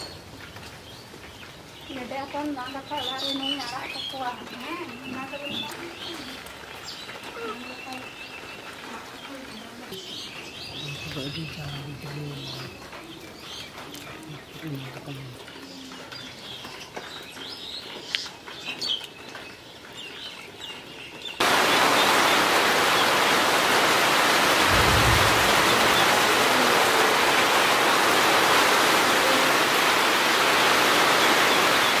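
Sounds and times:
birds chirping faintly: 0:00.0 - 0:32.0
loud steady rain: 0:00.0 - 0:32.0
low rumble: 0:24.5 - 0:27.3.

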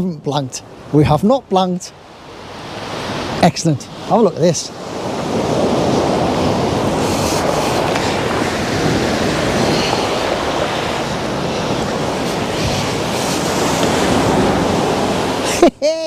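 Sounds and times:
waves breaking against seawall: 0:02.0 - 0:15.7
wind on microphone: 0:04.7 - 0:15.4.

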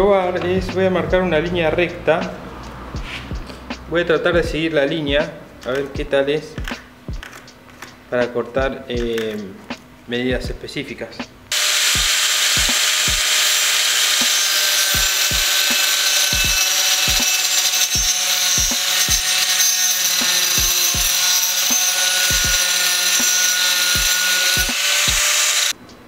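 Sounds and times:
low thumps: 0:02.9 - 0:05.2
angle grinder cutting wood: 0:11.5 - 0:25.8.

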